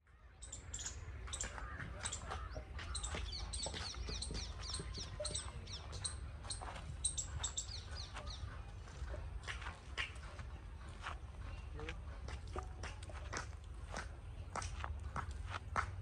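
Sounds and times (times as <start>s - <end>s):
small birds chirping: 0.2s - 12.2s.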